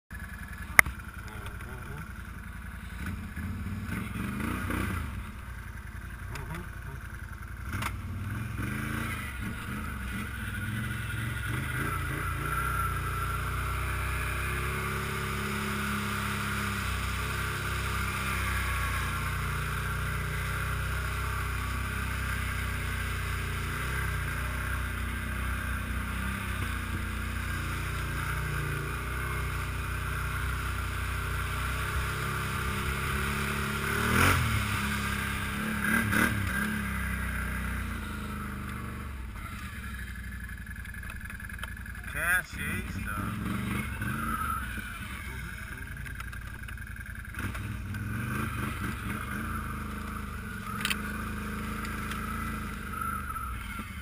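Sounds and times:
quad engine running: 0:00.1 - 0:54.0.

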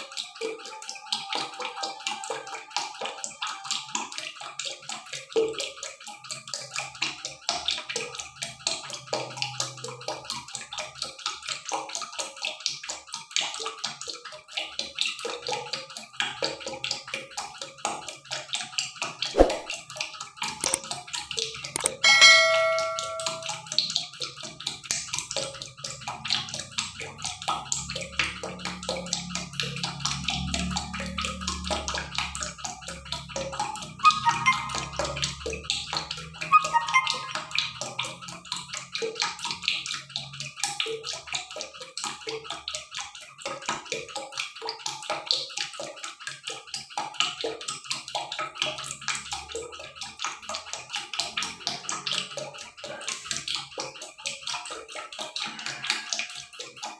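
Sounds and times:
pot bubbling and crackling: 0:00.0 - 0:56.9
metallic clang ringing: 0:21.8 - 0:23.7.

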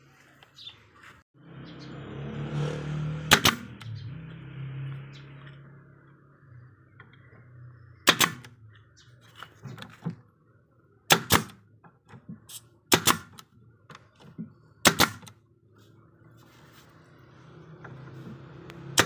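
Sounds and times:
nail gun firing into wood: 0:03.3 - 0:03.7, 0:08.0 - 0:08.5, 0:11.1 - 0:11.6, 0:12.9 - 0:13.5, 0:14.8 - 0:15.4.

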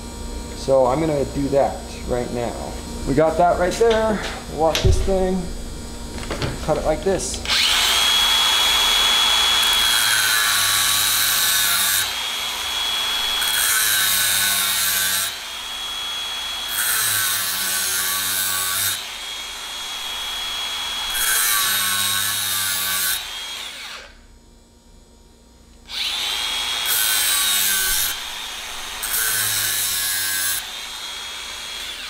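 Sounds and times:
angle grinder cutting metal: 0:07.4 - 0:24.2, 0:25.9 - 0:32.0.

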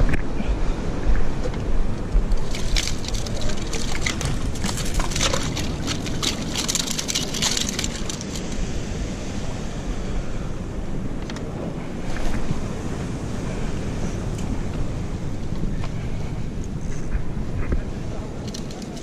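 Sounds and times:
wind on microphone: 0:00.0 - 0:19.0
fish flapping on rock: 0:02.1 - 0:08.6.

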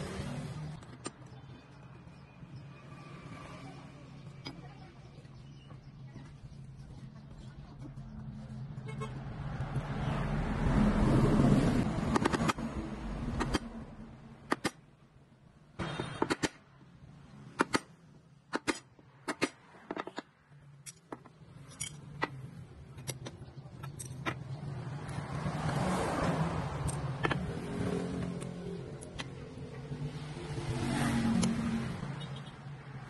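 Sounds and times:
passing road vehicle rumble: 0:07.8 - 0:14.4, 0:24.4 - 0:33.0
metallic clicks and clinks: 0:19.9 - 0:25.2, 0:26.8 - 0:27.4.

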